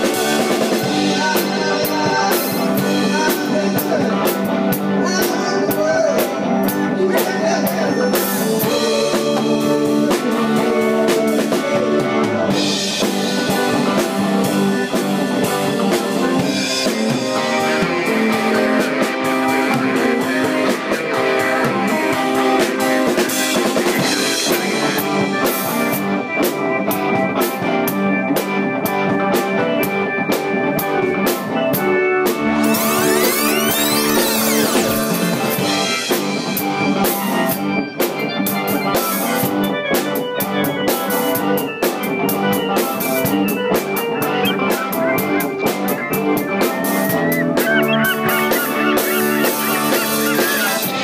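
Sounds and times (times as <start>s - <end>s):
live rock band playing: 0.0s - 51.0s
drum kit hits and cymbals: 32.5s - 47.4s.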